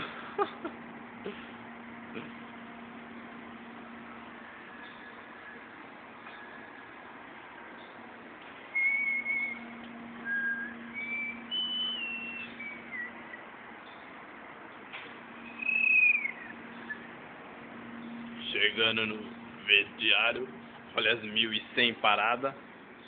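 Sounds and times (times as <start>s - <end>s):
steady low hum: 0.0s - 23.0s
person whistling a tune: 10.2s - 13.2s.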